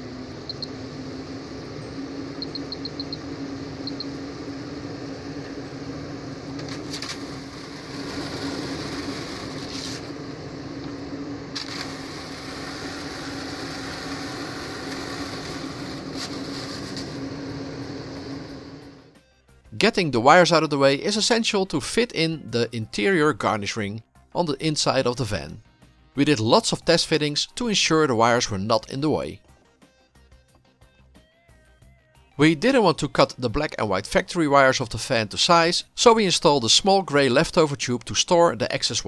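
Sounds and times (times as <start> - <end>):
roof vent fan running: 0.0 - 19.2
control panel beeps: 0.4 - 0.8, 1.8 - 4.2.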